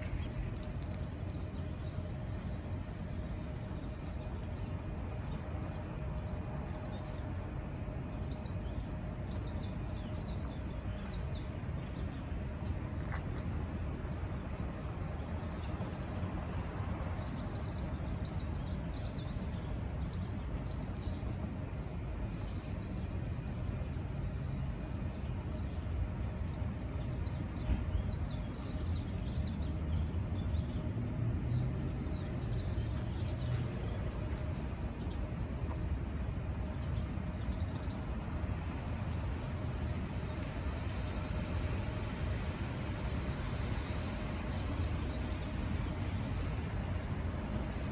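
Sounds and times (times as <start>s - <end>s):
low street rumble: 0.0s - 47.9s.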